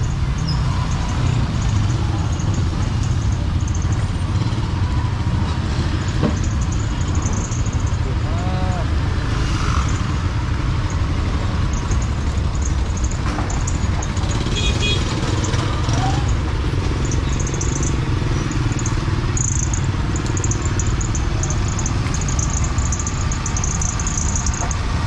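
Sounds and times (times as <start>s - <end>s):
passing traffic hum: 0.0s - 25.0s
scattered voices: 7.9s - 9.0s.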